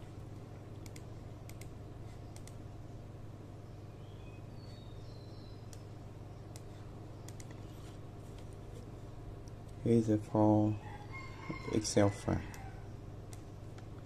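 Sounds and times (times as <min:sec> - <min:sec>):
steady low hum: 0:00.0 - 0:14.0
computer mouse clicking: 0:00.8 - 0:02.6, 0:06.5 - 0:07.7, 0:13.3 - 0:14.0
faint high chirps: 0:03.7 - 0:07.6.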